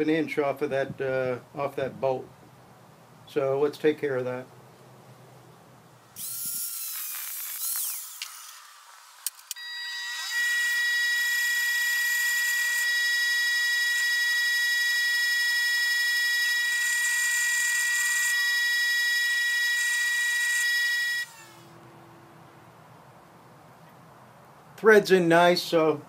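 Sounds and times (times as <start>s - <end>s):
bench grinder whining: 6.2s - 21.8s.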